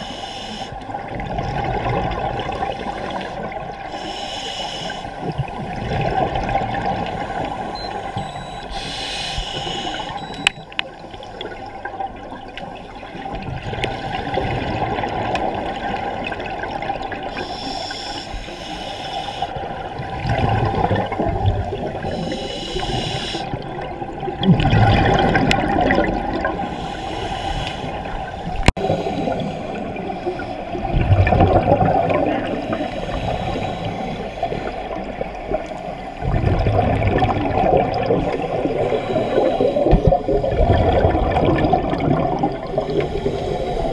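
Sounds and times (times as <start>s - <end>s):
regulator hissing inhalations: 0.0s - 0.8s, 2.7s - 5.2s, 7.2s - 10.4s, 17.3s - 19.6s, 22.0s - 23.6s, 26.6s - 30.7s, 42.9s - 43.9s
bubbling exhaled air: 19.6s - 43.9s.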